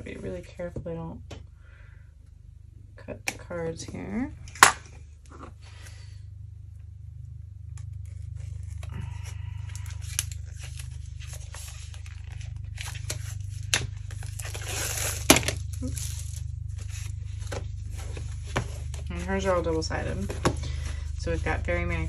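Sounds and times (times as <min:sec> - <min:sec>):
packaging crinkling and tearing: 0:07.8 - 0:19.1.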